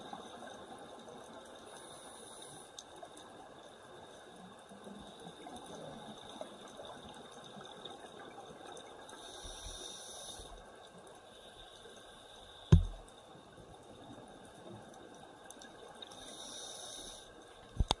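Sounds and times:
faint hiss: 0:09.1 - 0:10.7, 0:16.1 - 0:18.0
sharp thump: 0:12.7 - 0:13.0.

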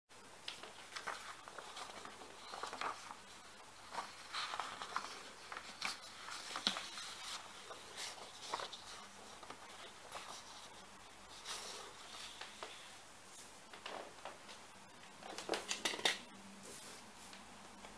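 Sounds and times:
paper rustling and crinkling: 0:00.4 - 0:12.8.

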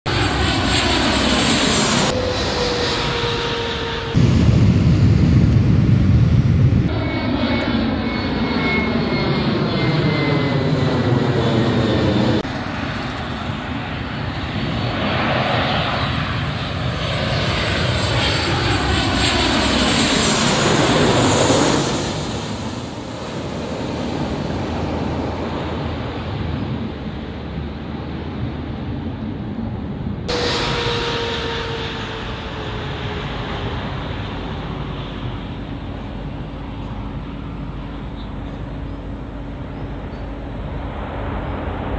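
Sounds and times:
jet engines roaring and whining: 0:00.0 - 0:41.9.

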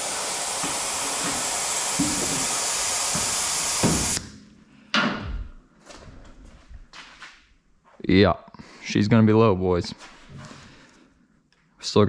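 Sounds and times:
compressed air hissing: 0:00.0 - 0:04.2
sharp knock: 0:02.0 - 0:04.2.

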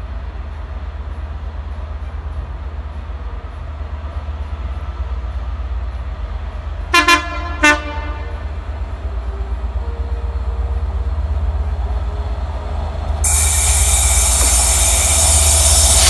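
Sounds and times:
diesel locomotive rumble: 0:00.0 - 0:16.0
locomotive horn toots: 0:06.9 - 0:08.6.

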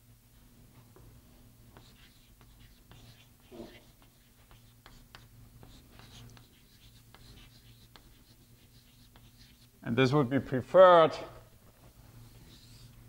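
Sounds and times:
steady low hum: 0:00.0 - 0:13.0
chalk scratching on blackboard: 0:01.7 - 0:09.8, 0:11.8 - 0:13.0.

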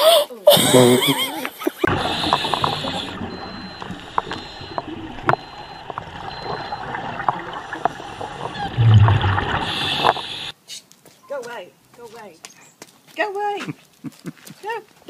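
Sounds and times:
sharp clicks and pops: 0:01.9 - 0:10.5
underwater bubbles gurgling: 0:01.9 - 0:10.5.

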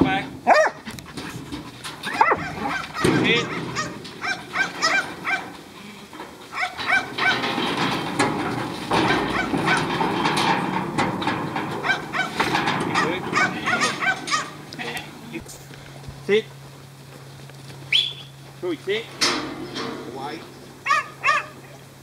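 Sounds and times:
rattling shuffling noise: 0:00.0 - 0:22.0
dog yapping: 0:00.4 - 0:00.9, 0:02.0 - 0:05.5, 0:06.5 - 0:07.5, 0:09.3 - 0:09.9, 0:11.8 - 0:14.6, 0:20.8 - 0:21.7.

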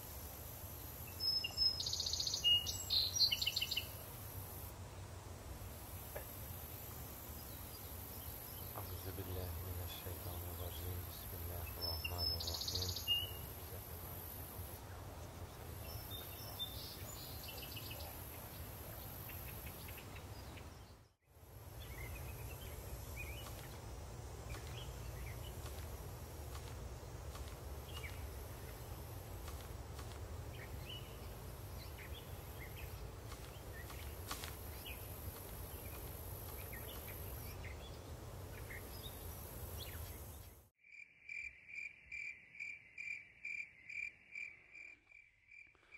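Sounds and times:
high hiss: 0:00.0 - 0:20.2, 0:21.3 - 0:40.6
bird chirps: 0:01.0 - 0:04.0, 0:07.3 - 0:14.0, 0:15.3 - 0:21.1, 0:30.5 - 0:40.6.

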